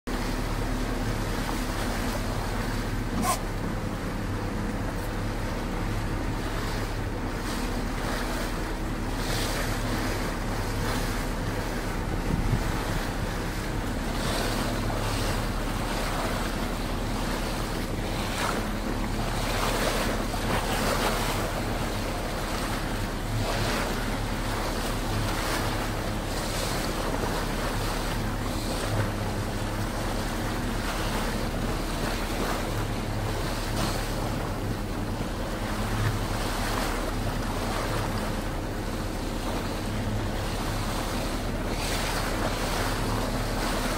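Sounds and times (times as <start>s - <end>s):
boat engine hum: 0.0s - 43.9s
water washing around boat: 0.0s - 43.9s
wind buffeting microphone: 3.9s - 36.9s.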